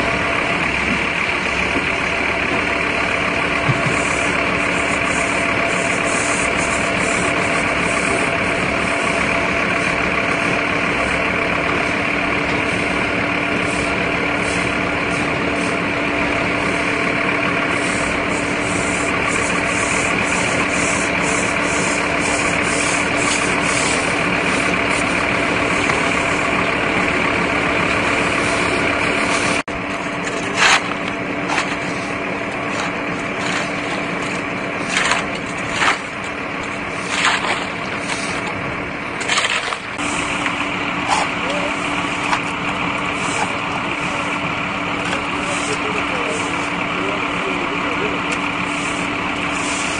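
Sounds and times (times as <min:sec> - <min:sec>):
truck engine droning: 0:00.0 - 0:49.9
shovel scraping on asphalt: 0:17.8 - 0:26.4, 0:28.1 - 0:40.4, 0:45.0 - 0:46.8, 0:48.6 - 0:49.9.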